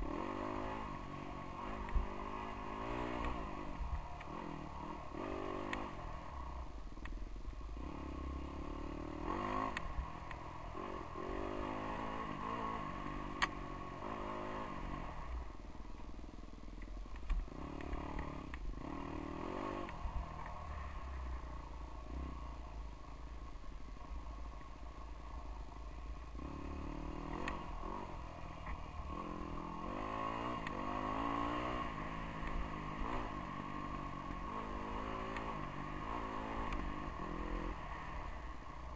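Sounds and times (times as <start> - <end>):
dirt bike engine revving: 0.0 - 6.0, 7.8 - 10.1, 10.7 - 15.4, 17.5 - 21.0, 26.4 - 28.4, 29.0 - 38.4.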